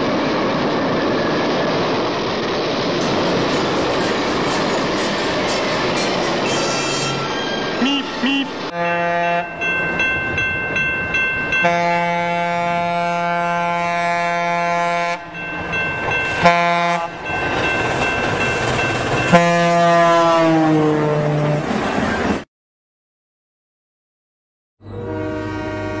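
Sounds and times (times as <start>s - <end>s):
moving train rumble: 0.0s - 22.4s
train horn blasts: 8.3s - 9.5s, 11.6s - 15.3s, 16.4s - 17.2s, 19.3s - 21.6s, 24.9s - 26.0s.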